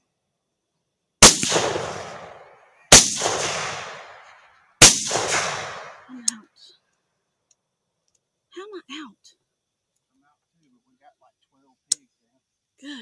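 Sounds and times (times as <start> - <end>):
rifle shots with rolling echo: 1.2 - 6.1.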